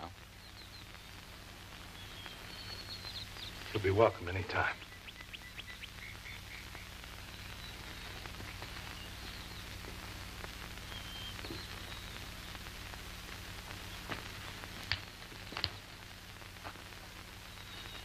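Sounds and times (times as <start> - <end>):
faint high chirps: 0.0 - 9.8, 10.8 - 12.6, 17.5 - 18.0
mains hum and hiss: 0.0 - 18.0.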